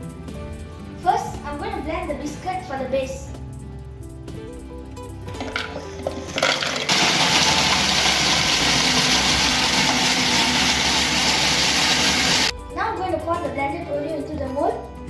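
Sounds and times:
biscuits clattering into a bowl: 0:05.4 - 0:07.0
food processor running: 0:06.4 - 0:12.5.

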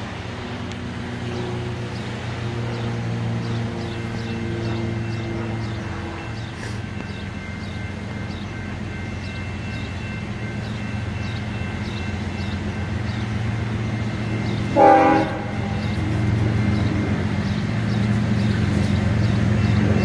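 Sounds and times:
diesel locomotive engine drone: 0:00.0 - 0:20.0
locomotive air horn blast: 0:14.7 - 0:15.8.

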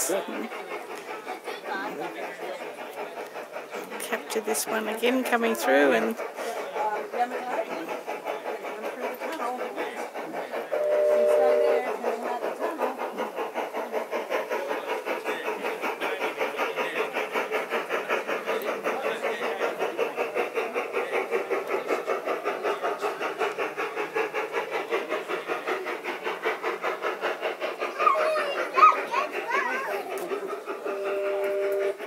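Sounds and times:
model steam locomotive chuffing: 0:00.0 - 0:32.0.

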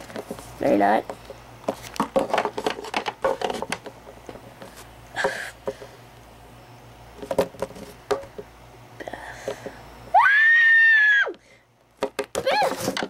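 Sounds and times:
girl screaming: 0:10.1 - 0:11.4, 0:12.4 - 0:12.8.

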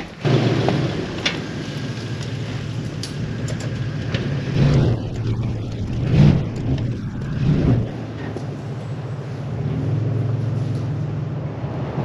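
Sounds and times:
sharp knocks and rattles: 0:00.0 - 0:08.6
truck engine and road hum: 0:00.0 - 0:12.0.

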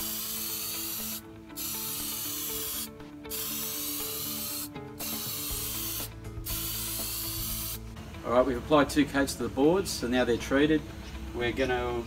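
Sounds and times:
aerosol can spraying: 0:00.0 - 0:07.8.

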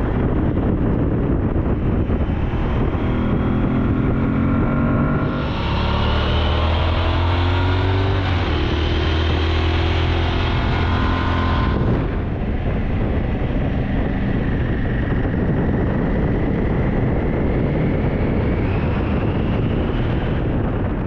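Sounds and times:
motorcycle engine drone: 0:00.0 - 0:21.0
wind noise on microphone: 0:00.0 - 0:21.0
faint rising whine: 0:02.0 - 0:13.8.

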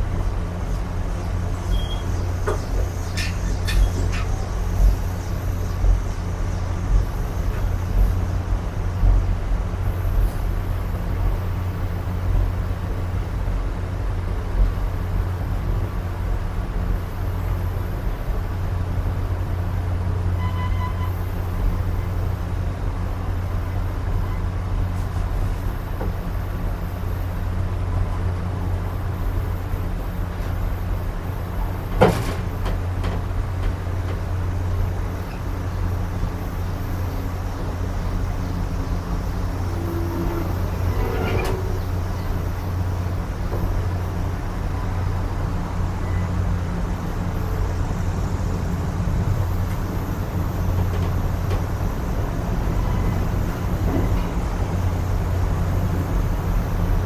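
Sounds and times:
train wheels rumbling on track: 0:00.0 - 0:57.0
brief squeal: 0:01.6 - 0:04.5, 0:20.4 - 0:21.2, 0:39.6 - 0:42.3.

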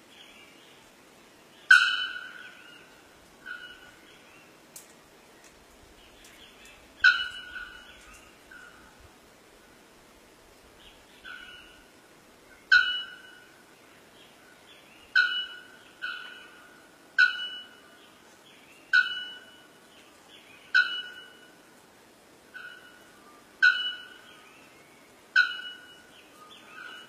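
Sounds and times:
bellbird calling: 0:01.7 - 0:04.0, 0:07.0 - 0:08.8, 0:11.2 - 0:11.8, 0:12.6 - 0:13.6, 0:15.1 - 0:18.0, 0:18.9 - 0:19.8, 0:20.7 - 0:21.7, 0:22.5 - 0:24.5, 0:25.4 - 0:27.0.

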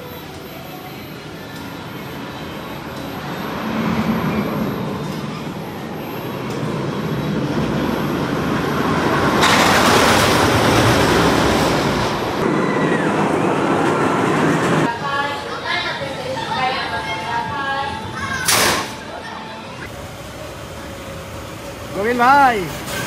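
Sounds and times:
roller coaster rumbling on track: 0:03.5 - 0:15.6.

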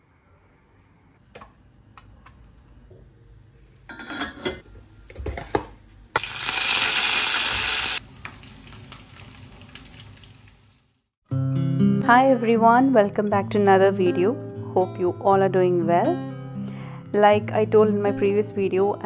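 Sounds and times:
metal cookware clattering: 0:03.9 - 0:05.6
soft frying sizzle: 0:05.2 - 0:11.2
loud sizzle in hot pan: 0:06.2 - 0:11.1.

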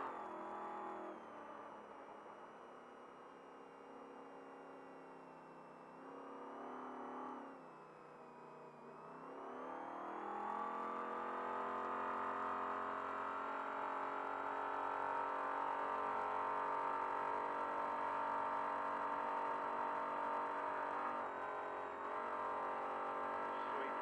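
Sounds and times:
truck engine at high revs: 0:14.5 - 0:24.0.

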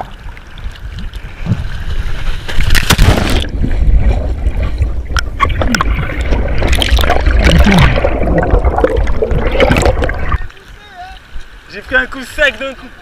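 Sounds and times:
water rushing and splashing: 0:00.0 - 0:13.0
loud splash into the sea: 0:02.6 - 0:03.7
muffled underwater rumbling: 0:03.0 - 0:10.6
underwater bubbling: 0:03.3 - 0:11.7.

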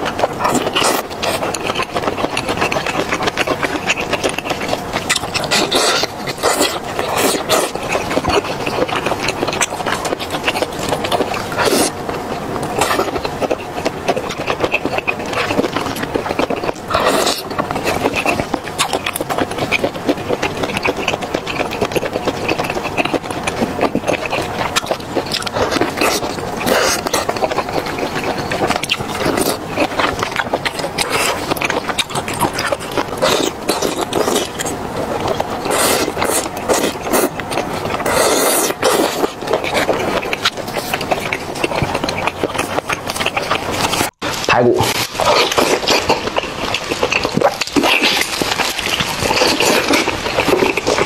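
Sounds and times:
chewing and sucking: 0:00.0 - 0:51.0.

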